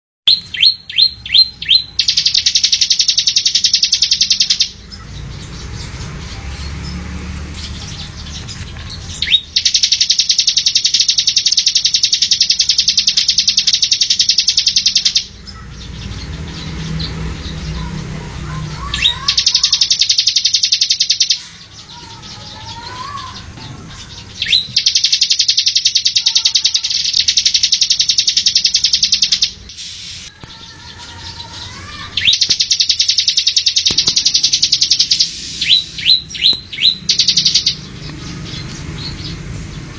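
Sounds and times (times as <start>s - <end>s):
bird singing rattling trills: 0.3s - 39.9s.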